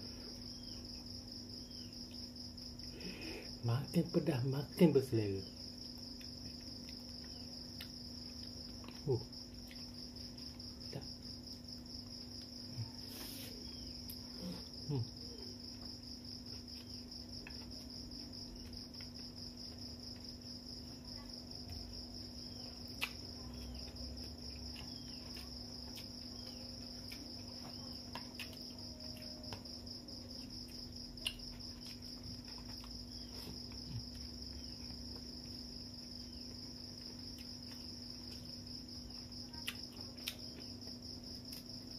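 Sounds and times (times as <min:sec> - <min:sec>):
insect trill: 0:00.0 - 0:41.9
eating clicks and smacks: 0:05.7 - 0:12.7, 0:16.7 - 0:20.3, 0:22.5 - 0:29.8, 0:30.4 - 0:35.6, 0:39.5 - 0:41.8.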